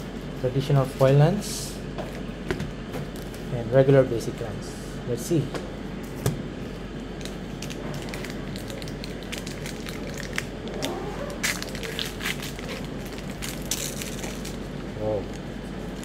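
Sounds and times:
wrapper crinkling and tearing: 0:07.2 - 0:16.0.

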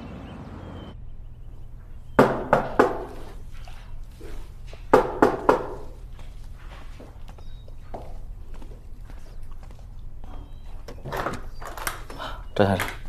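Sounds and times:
knocking on a door: 0:02.2 - 0:03.2, 0:04.9 - 0:05.9.

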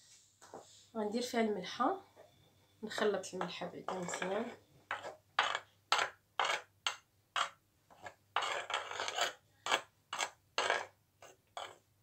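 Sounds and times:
fingers scraping flour in dish: 0:03.9 - 0:06.7, 0:07.4 - 0:11.8.

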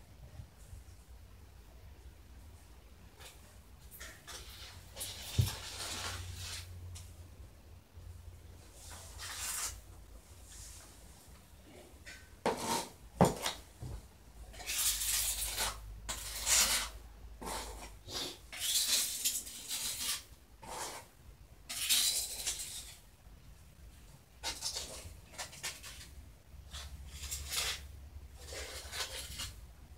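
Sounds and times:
scraping and rubbing strokes: 0:03.2 - 0:07.1, 0:08.6 - 0:13.6, 0:14.5 - 0:23.0, 0:24.4 - 0:29.7.

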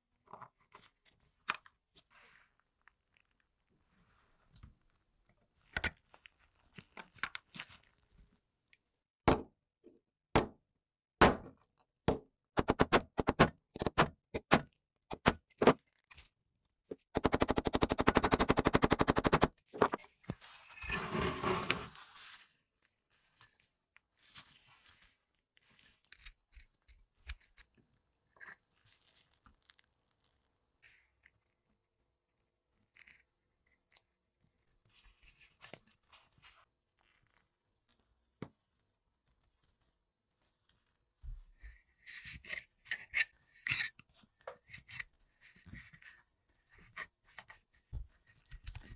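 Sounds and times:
short scraping noise: 0:20.6 - 0:22.2.

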